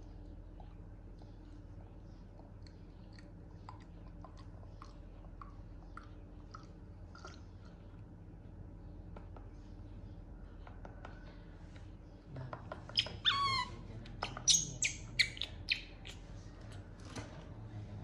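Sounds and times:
baby monkey squealing cries: 13.0 - 16.1.

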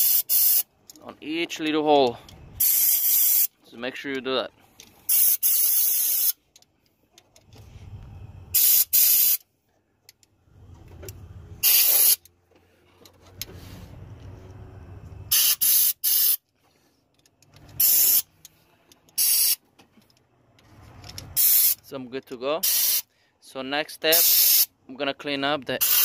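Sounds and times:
compressed air blasts: 0.0 - 0.7, 2.6 - 3.5, 5.0 - 6.4, 8.5 - 9.4, 11.6 - 12.2, 15.3 - 16.4, 17.8 - 18.3, 19.2 - 19.6, 21.3 - 21.8, 22.6 - 23.1, 24.2 - 24.7, 25.8 - 26.0.

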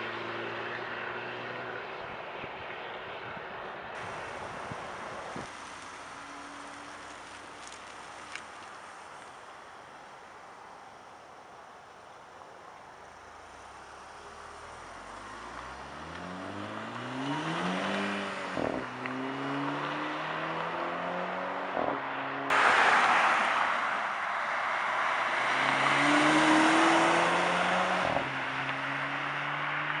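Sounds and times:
car passing with tyre noise: 0.0 - 30.0
car engine accelerating: 13.3 - 24.0, 24.6 - 30.0.

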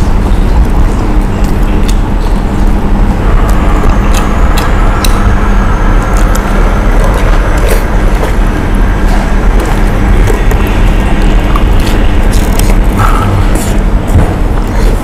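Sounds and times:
faint low hum: 0.0 - 15.0
loud steady rumbling: 0.0 - 15.0.

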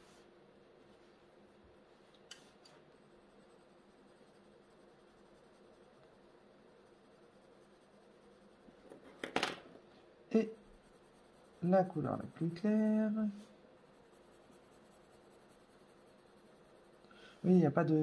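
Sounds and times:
pencils clicking on a table: 8.9 - 9.7.

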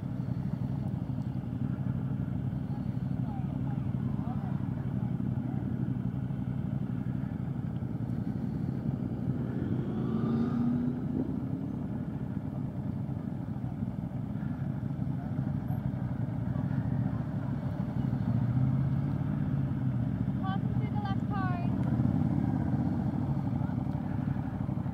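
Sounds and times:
other motorcycle engines: 0.0 - 24.9
motorcycle engine low revs: 6.9 - 20.3.

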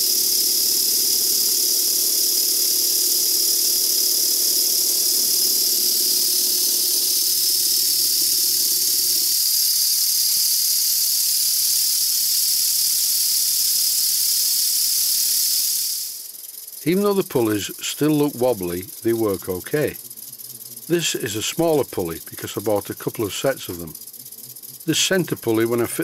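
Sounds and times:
hiss of exhaust air: 5.4 - 16.5
steam engine hum: 16.8 - 24.1, 24.8 - 26.0.

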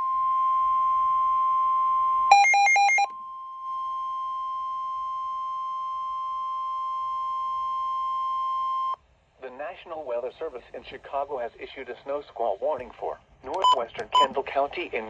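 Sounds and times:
steady alarm tone: 0.0 - 7.9.

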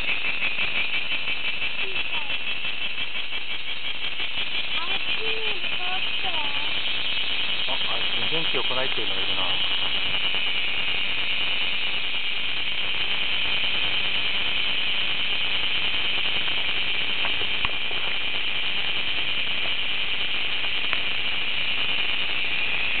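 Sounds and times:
cicadas droning: 0.0 - 23.0.

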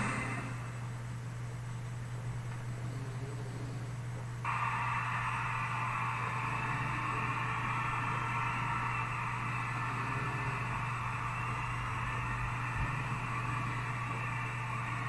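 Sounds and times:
even hiss: 0.0 - 0.9
steady low hum: 0.0 - 15.0.

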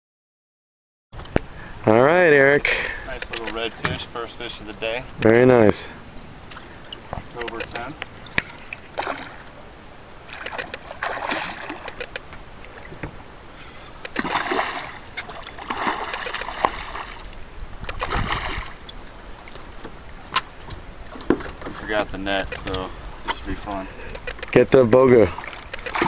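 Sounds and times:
sharp clicks: 3.2 - 3.6, 6.9 - 8.8, 24.1 - 24.6
fish splashing at water surface: 10.3 - 12.2, 14.1 - 18.8.

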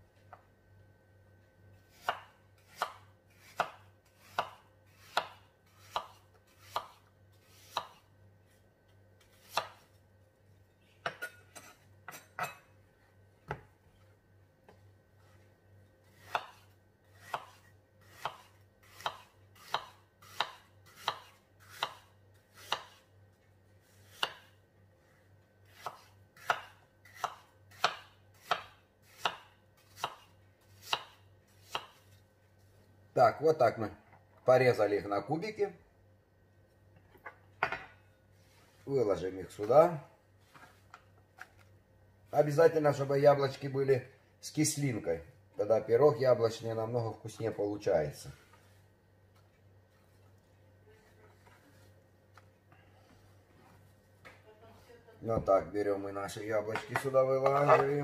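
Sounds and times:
knife chopping on wooden board: 1.9 - 8.0, 9.4 - 9.8, 16.2 - 23.0, 24.0 - 24.6, 25.7 - 32.0.

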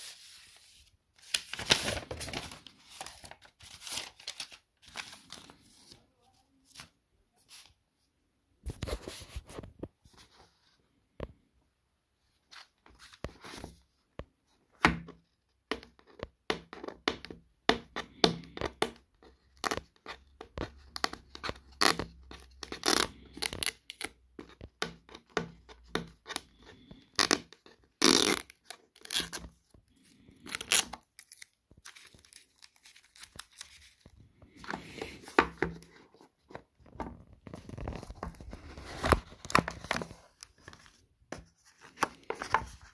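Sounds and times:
hands handling cardboard box: 31.8 - 42.9.

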